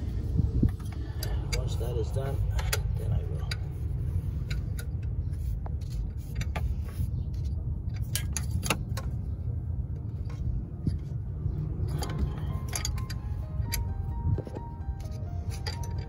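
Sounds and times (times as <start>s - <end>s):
steady low rumble: 0.0s - 16.0s
wrench and ratchet clicking on metal: 15.0s - 16.0s.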